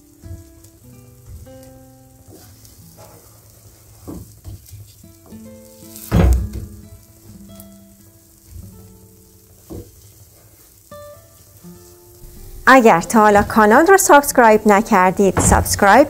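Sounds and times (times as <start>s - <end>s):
batter sizzling in frying pan: 0.0s - 16.0s.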